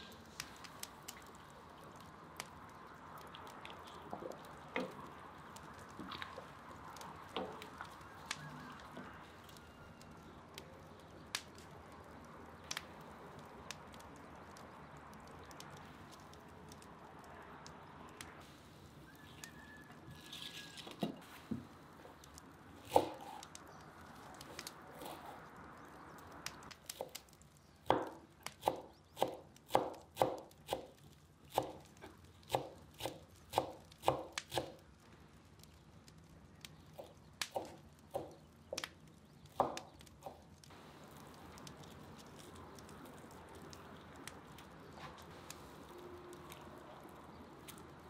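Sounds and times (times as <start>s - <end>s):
soup simmering with bubbles popping: 0.0s - 18.4s
herbs rustling: 0.0s - 29.0s, 35.2s - 48.0s.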